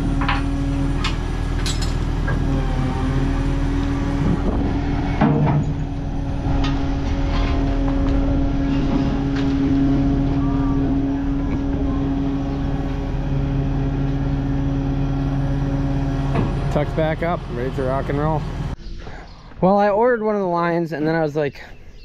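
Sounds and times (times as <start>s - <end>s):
diesel engine droning: 0.0s - 19.6s
sharp knocks: 5.2s - 5.8s.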